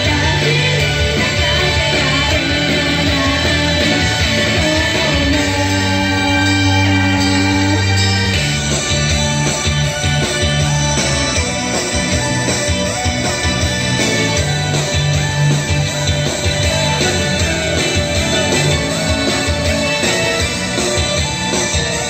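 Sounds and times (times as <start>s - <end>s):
upbeat pop song with electric guitar: 0.0s - 22.0s.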